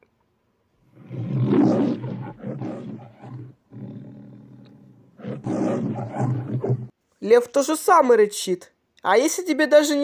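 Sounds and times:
lion roaring: 0.9s - 6.9s.

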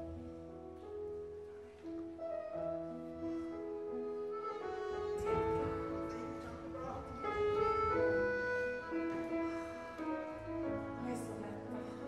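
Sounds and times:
accordion: 2.5s - 12.0s
instrumental ensemble playing: 4.3s - 11.5s.

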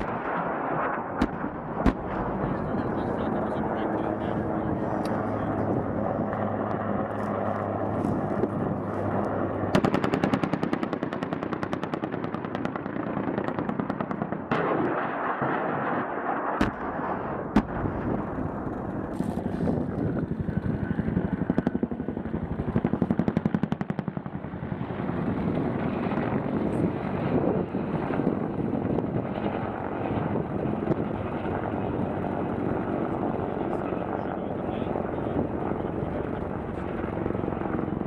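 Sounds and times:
sharp single gunshot cracks: 1.2s - 2.3s
automatic gunfire: 9.7s - 13.0s.

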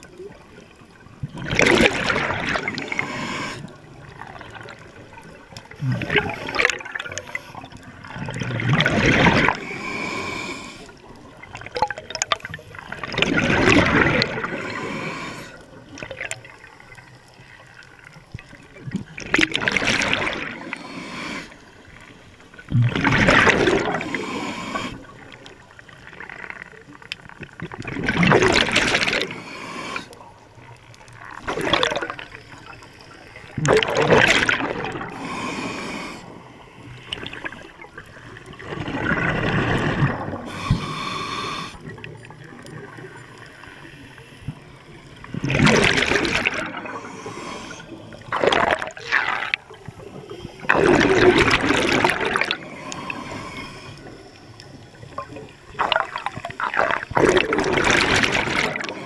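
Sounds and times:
underwater air bubbles: 0.0s - 59.0s.

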